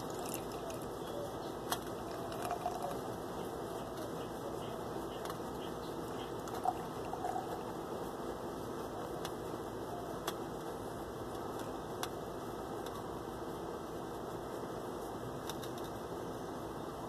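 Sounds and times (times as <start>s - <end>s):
liquid pouring into a glass: 0.0s - 0.8s, 2.0s - 3.0s, 6.6s - 7.6s.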